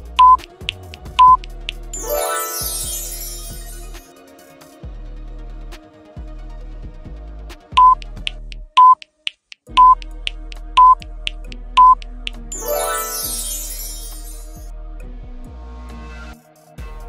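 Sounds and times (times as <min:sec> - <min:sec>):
background music with bass line: 0:00.0 - 0:04.0, 0:04.8 - 0:08.8, 0:09.7 - 0:17.0
short high electronic beeps: 0:00.2 - 0:00.4, 0:07.8 - 0:08.0, 0:08.8 - 0:09.0, 0:09.7 - 0:10.0, 0:10.8 - 0:11.0, 0:11.8 - 0:13.8.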